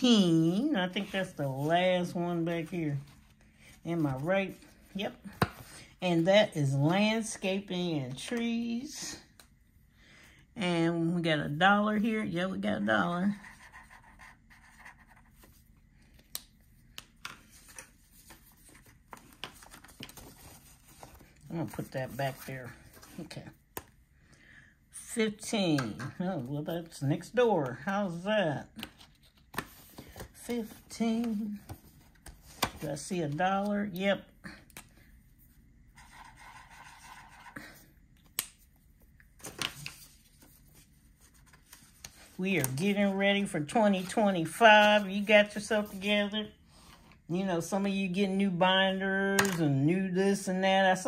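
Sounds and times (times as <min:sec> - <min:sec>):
pen scratching on paper: 0:13.3 - 0:15.2, 0:36.0 - 0:37.6
paper rustling: 0:17.2 - 0:23.4.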